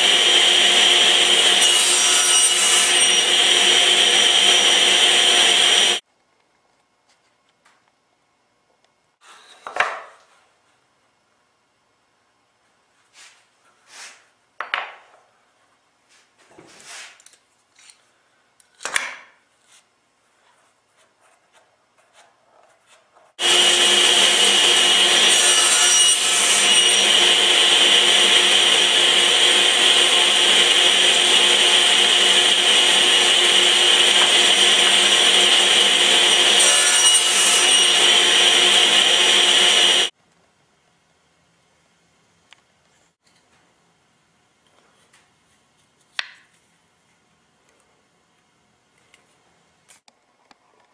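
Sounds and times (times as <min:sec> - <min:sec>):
power tool whining: 0:00.0 - 0:06.0, 0:23.4 - 0:40.1.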